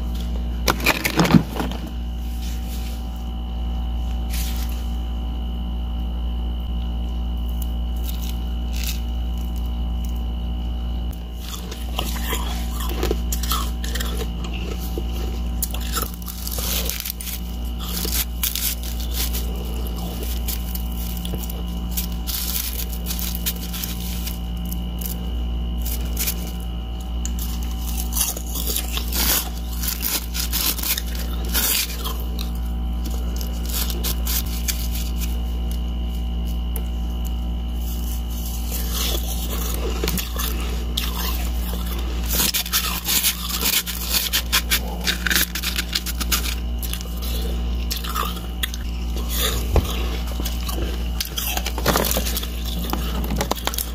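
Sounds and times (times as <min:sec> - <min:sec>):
steady low hum: 0:00.0 - 0:53.9
ice shell crunching and cracking: 0:00.6 - 0:02.0, 0:11.4 - 0:25.2, 0:27.2 - 0:35.8, 0:38.6 - 0:53.9.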